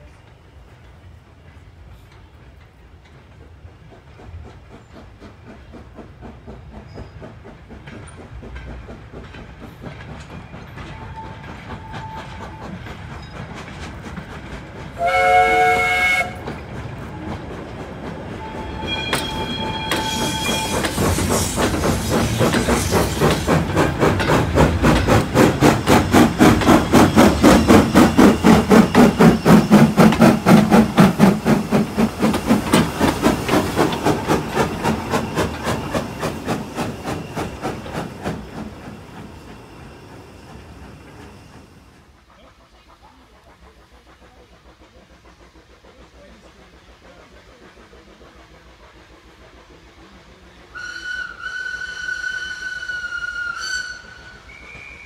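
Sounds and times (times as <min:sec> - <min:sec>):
train rumble: 0:00.0 - 0:55.0
train wheels rhythm: 0:00.0 - 0:55.0
locomotive exhaust beats: 0:03.2 - 0:55.0
steam whistle blast: 0:15.0 - 0:16.5, 0:18.4 - 0:21.2, 0:50.7 - 0:55.0.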